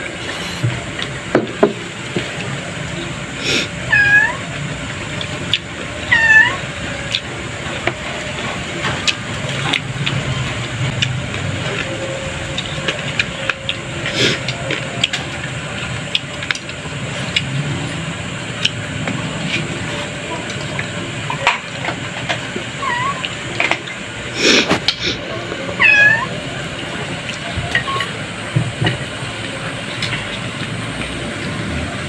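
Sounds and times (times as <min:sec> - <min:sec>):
cat meowing: 0:03.9 - 0:04.5, 0:06.1 - 0:06.6, 0:22.8 - 0:23.3, 0:25.8 - 0:26.4
clicks and taps of eating: 0:14.4 - 0:17.5.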